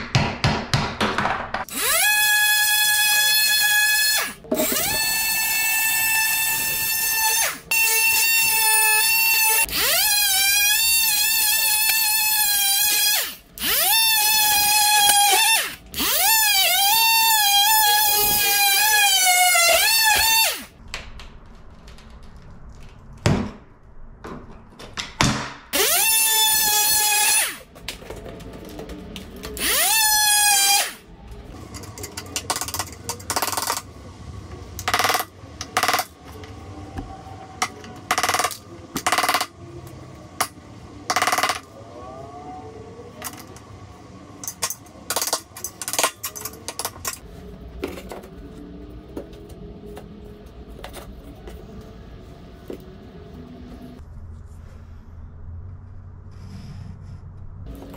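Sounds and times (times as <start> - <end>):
cordless power tool whining: 1.7 - 20.7, 25.8 - 27.6, 29.5 - 31.0.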